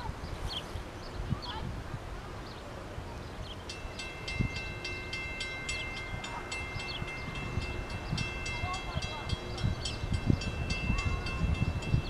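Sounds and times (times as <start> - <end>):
low wind rumble: 0.0 - 12.0
crossing warning bell ringing: 3.6 - 12.0.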